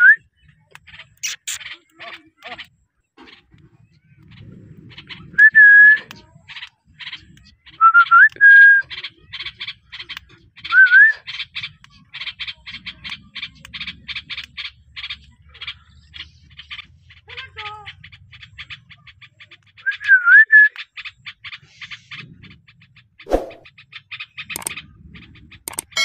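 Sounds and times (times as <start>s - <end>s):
parakeet scratchy chirps: 0.9s - 2.6s, 23.3s - 23.7s.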